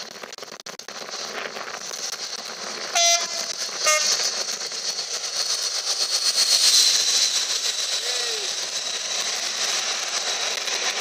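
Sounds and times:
rumble of wagons: 0:00.0 - 0:11.0
diesel locomotive engine passing: 0:00.1 - 0:11.0
two-tone locomotive horn blasts: 0:03.0 - 0:04.2.

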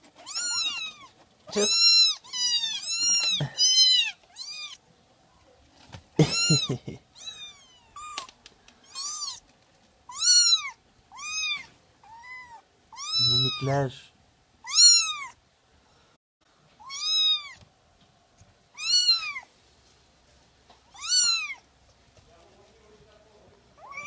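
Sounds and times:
kittens mewing: 0:00.0 - 0:04.8, 0:06.2 - 0:09.4, 0:10.1 - 0:13.8, 0:14.6 - 0:15.4, 0:16.8 - 0:17.6, 0:18.7 - 0:19.5, 0:20.9 - 0:21.6, 0:23.8 - 0:24.0.

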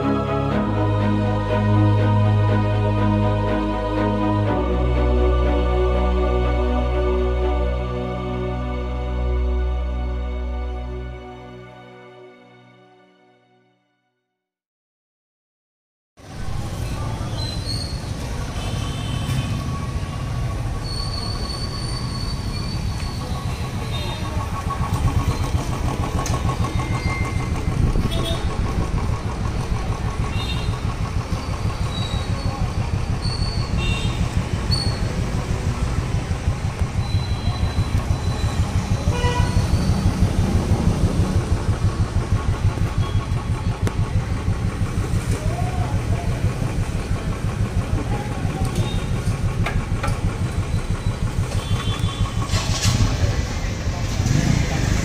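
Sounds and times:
motorcycle engine idling and revving: 0:16.2 - 0:55.0.

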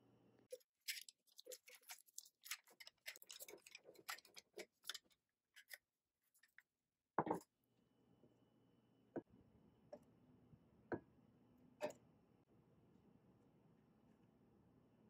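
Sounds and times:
aluminium foil crinkling: 0:00.5 - 0:05.8.

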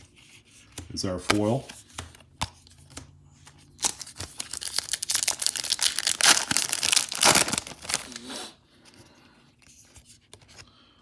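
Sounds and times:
foil wrapper crinkling and tearing: 0:03.8 - 0:08.3.

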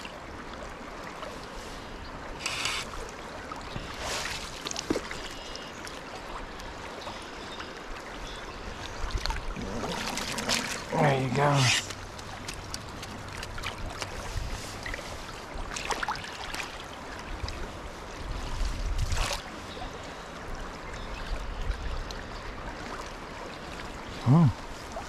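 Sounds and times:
river current flowing: 0:00.0 - 0:25.0
net splashing in water: 0:09.5 - 0:10.9.

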